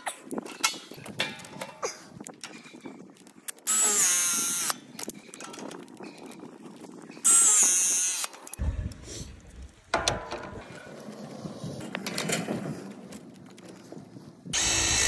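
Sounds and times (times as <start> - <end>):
press tool motor whine: 14.6 - 15.0.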